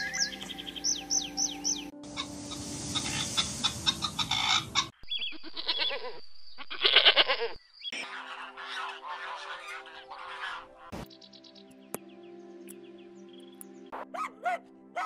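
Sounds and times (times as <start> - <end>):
geese honking and cackling: 2.1 - 4.9, 8.0 - 11.0
goats bleating: 5.4 - 7.6.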